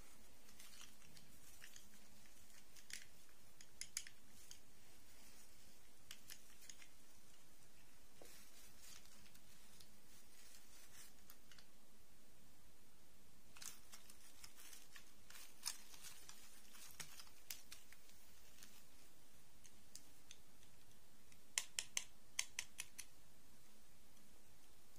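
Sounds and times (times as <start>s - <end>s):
faint rustles: 0.0s - 11.7s
small plastic clicks: 0.4s - 4.6s, 19.6s - 23.2s.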